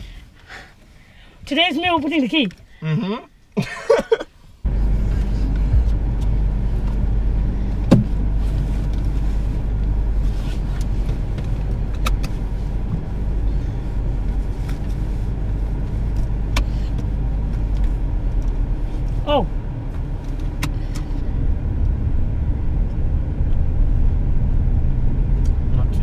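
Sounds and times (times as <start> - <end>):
car engine idling: 4.6 - 26.0.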